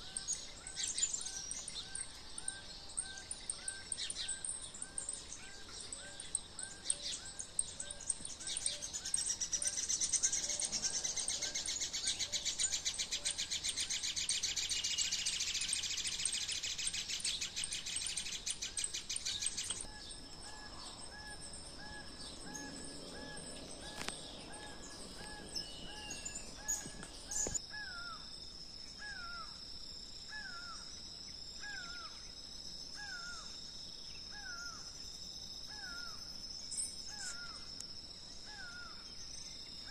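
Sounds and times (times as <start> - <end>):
thin steady high tone: 0.0 - 27.6
bird chirping: 0.0 - 29.5, 30.2 - 39.9.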